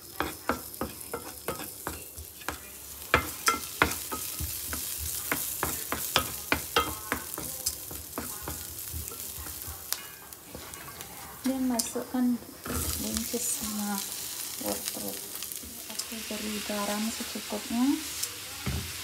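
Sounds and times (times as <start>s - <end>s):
oil sizzling: 0.0s - 19.0s
wooden spatula scraping a pan: 0.1s - 13.8s.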